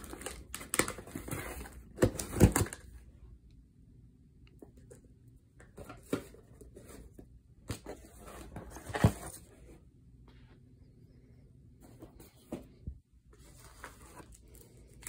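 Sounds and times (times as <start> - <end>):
cardboard packaging rustling: 0.0 - 2.9, 5.8 - 9.7, 13.3 - 15.0.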